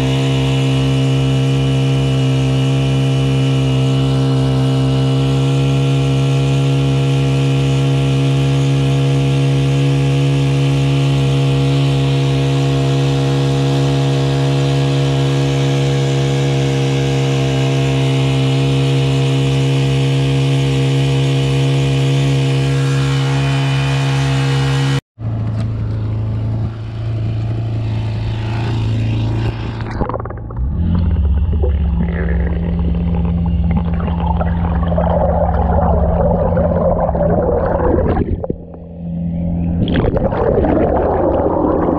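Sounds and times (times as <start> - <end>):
muffled engine underwater: 0.0 - 41.9
outboard motor running: 0.0 - 41.9
water rushing along hull: 29.0 - 41.9.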